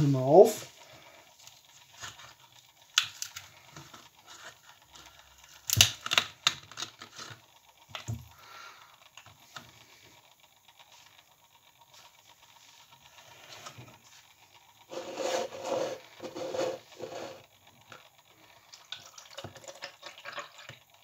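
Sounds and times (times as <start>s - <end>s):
carton cap clicks and crackles: 5.7s - 7.0s.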